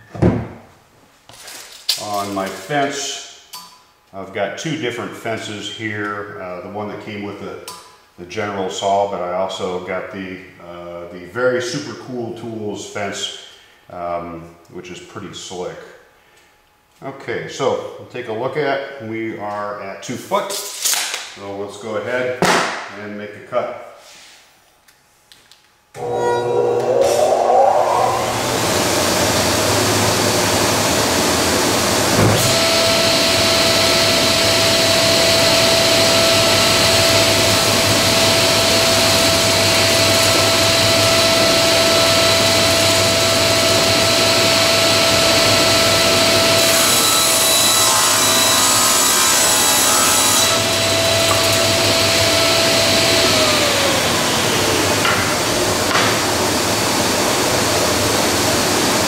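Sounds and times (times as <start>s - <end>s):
table saw whining: 26.0s - 30.7s, 31.9s - 57.7s
saw blade cutting plywood: 46.4s - 52.1s.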